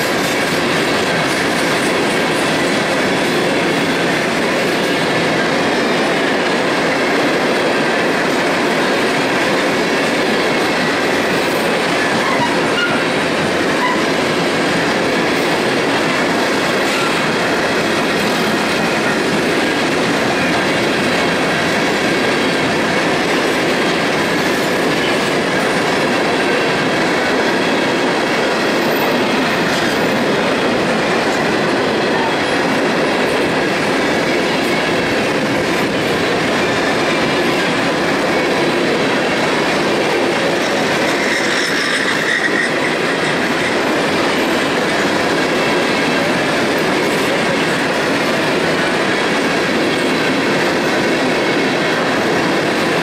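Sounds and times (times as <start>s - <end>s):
train wheels rumbling on rails: 0.0s - 53.0s
wheel squeal: 12.0s - 13.1s.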